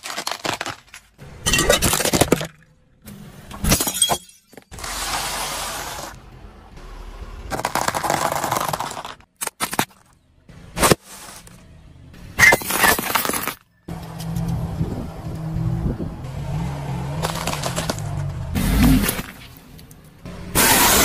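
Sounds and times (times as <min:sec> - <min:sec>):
tyre crunching chips on asphalt: 0:00.0 - 0:01.2, 0:07.5 - 0:10.2, 0:10.8 - 0:11.6, 0:17.1 - 0:19.8.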